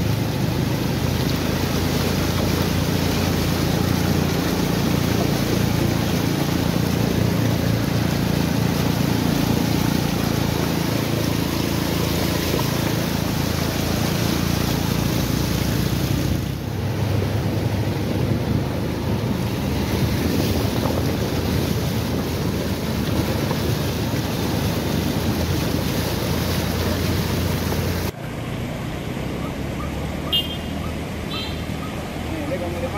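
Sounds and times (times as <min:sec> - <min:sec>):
motorcycle engine hum: 0:00.0 - 0:32.9
water splashing from wheels: 0:00.0 - 0:32.9
wind buffeting microphone: 0:16.6 - 0:28.1.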